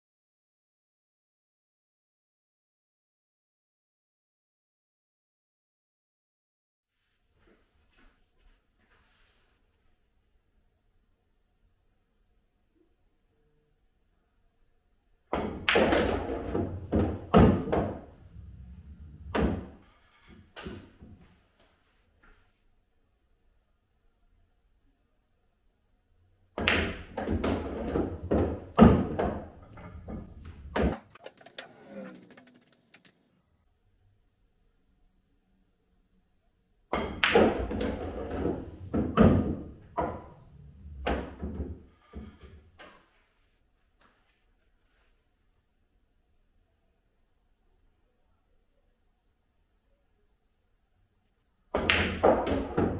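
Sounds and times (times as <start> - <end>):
pool balls knocking together: 15.3 - 19.8, 26.6 - 33.0, 36.9 - 43.0, 51.8 - 52.9
cue striking ball: 15.4 - 19.8, 26.6 - 32.7, 37.0 - 41.7, 51.8 - 52.9
ball rolling inside table: 15.4 - 21.3, 26.6 - 33.3, 37.0 - 43.2, 51.8 - 52.9.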